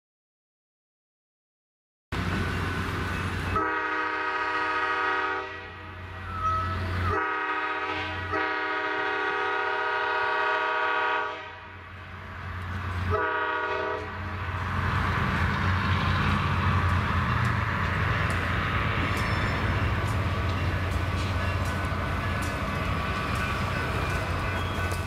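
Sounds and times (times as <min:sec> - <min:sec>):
locomotive air horn blasts: 0:03.5 - 0:11.8, 0:13.1 - 0:14.2
diesel engine rumble: 0:11.8 - 0:25.0.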